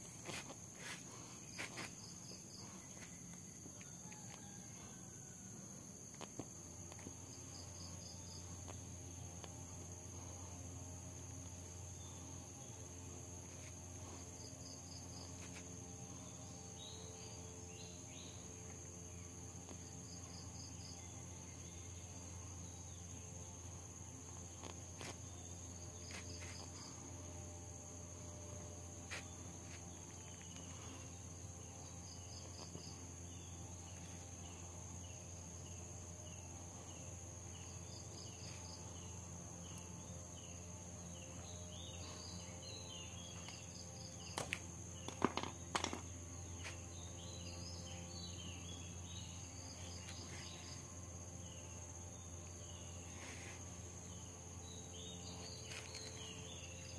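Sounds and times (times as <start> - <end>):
insects droning: 0.0 - 56.9
low steady hum: 0.0 - 56.9.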